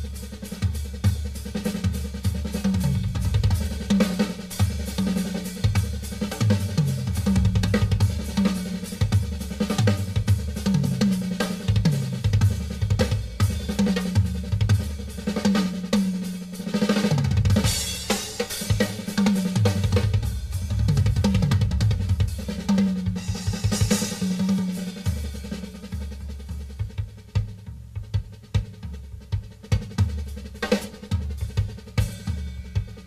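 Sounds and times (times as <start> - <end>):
bass drum and snare: 0.0 - 33.0
drum fills on toms: 0.0 - 33.0
cymbal crashes: 17.6 - 22.6.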